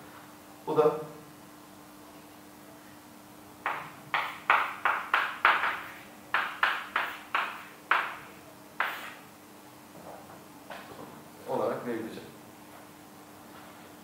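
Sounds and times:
faint steady hum: 0.0s - 14.0s
chalk tapping on blackboard: 3.6s - 9.2s.

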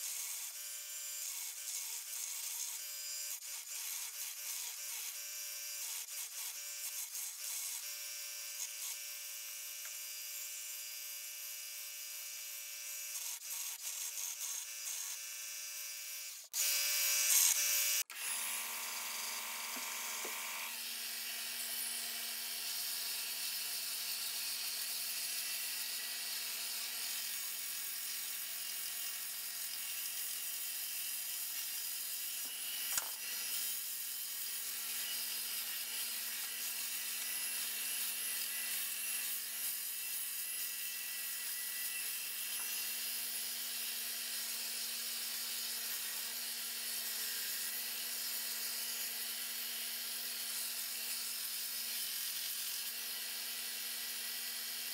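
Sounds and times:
belt sander sanding wood: 16.4s - 22.5s.

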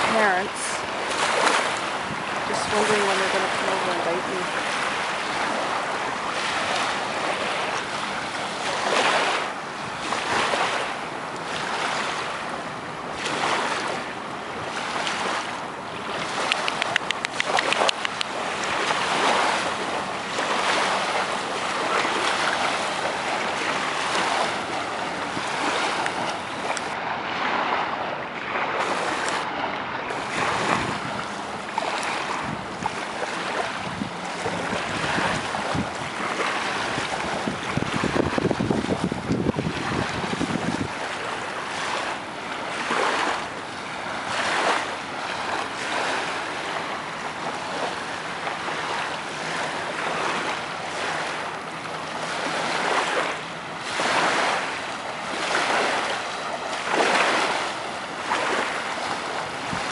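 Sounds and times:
wind buffeting microphone: 0.0s - 10.8s, 12.9s - 42.0s, 53.8s - 59.9s
small waves washing on shore: 0.0s - 59.9s
sharp clicks: 16.5s - 18.3s.

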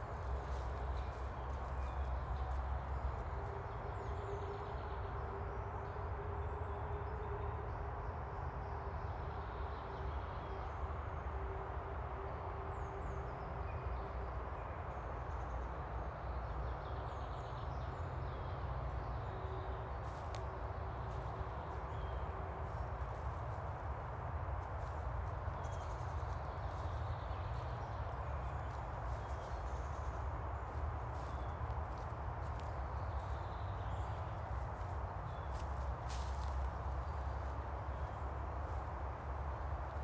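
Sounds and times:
footsteps on woodland path: 0.0s - 4.6s, 19.9s - 40.0s.

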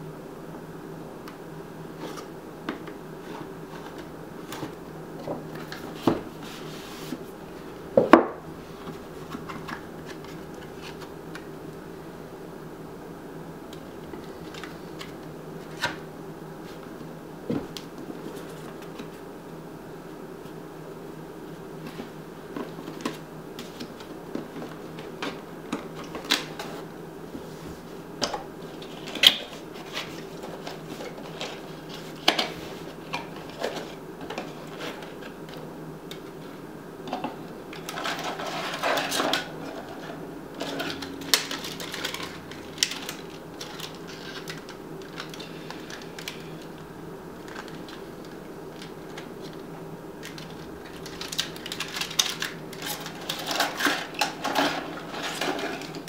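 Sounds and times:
steady low hum: 0.0s - 56.0s
packaging rustling: 37.7s - 46.8s, 47.4s - 49.6s, 50.2s - 56.0s.

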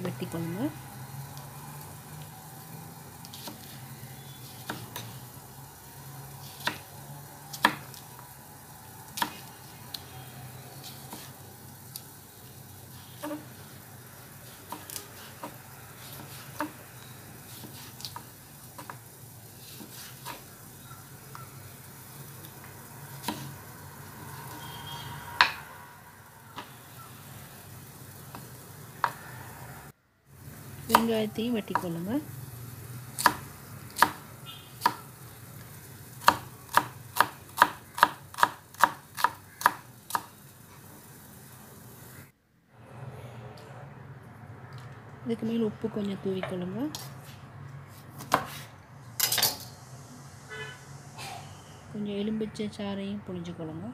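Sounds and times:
knife chopping on wooden board: 34.0s - 34.2s, 36.2s - 40.3s, 48.2s - 48.6s.

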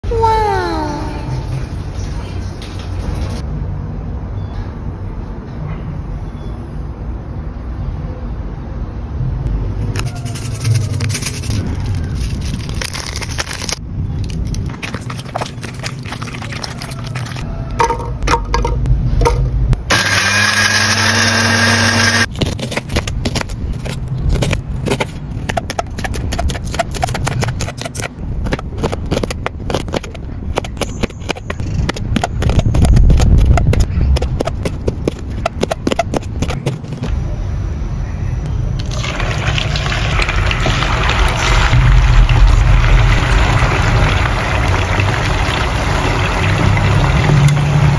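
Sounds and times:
hot oil sizzling: 38.8s - 47.9s.

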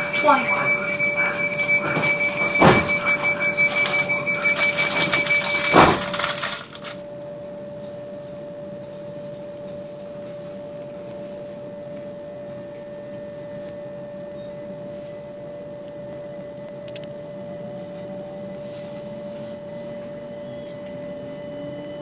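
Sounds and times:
electric train interior whine: 0.0s - 22.0s.

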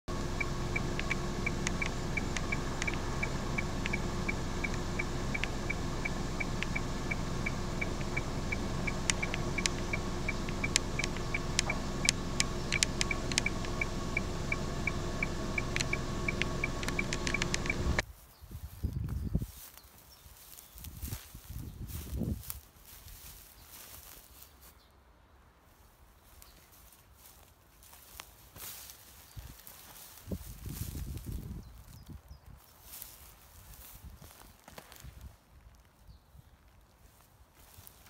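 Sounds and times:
fast regular high ticking: 0.1s - 18.0s
mechanical hum: 0.1s - 18.0s
sharp clicks: 0.1s - 18.0s.

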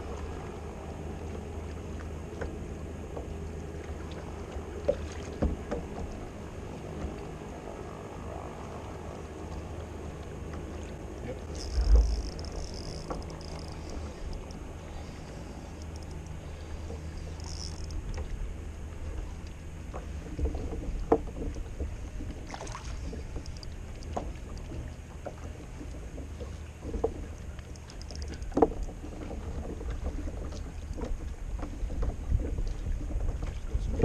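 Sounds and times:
faint water movement: 0.0s - 34.0s
light knocks on kayak hull: 4.8s - 6.2s
wind rumble on microphone: 11.2s - 26.0s, 28.2s - 34.0s.

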